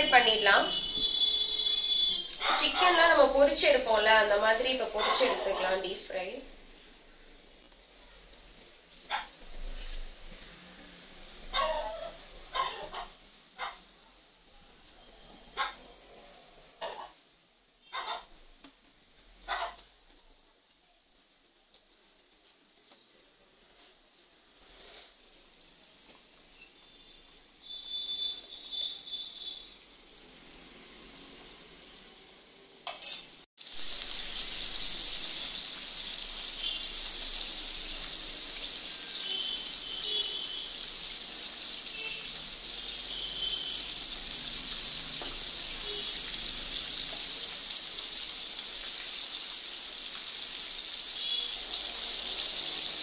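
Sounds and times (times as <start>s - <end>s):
food deep-frying in oil: 0.0s - 13.4s, 24.4s - 53.0s.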